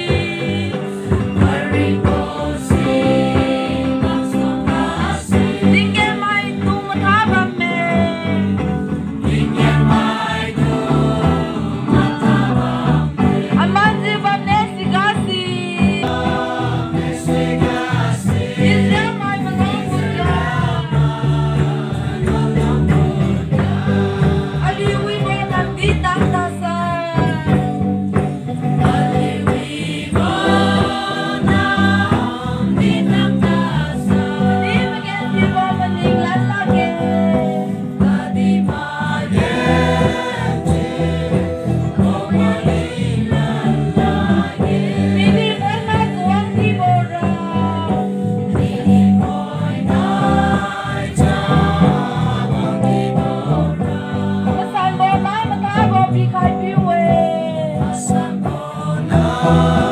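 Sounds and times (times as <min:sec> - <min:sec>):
low musical accompaniment: 0:00.0 - 0:59.9
men and women singing together: 0:00.0 - 0:59.9.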